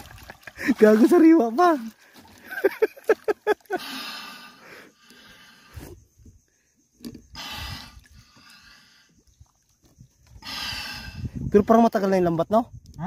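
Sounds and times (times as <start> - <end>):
water splashes and knocks: 0.0 - 3.4
breathing through a snorkel: 3.8 - 9.3, 10.3 - 11.5.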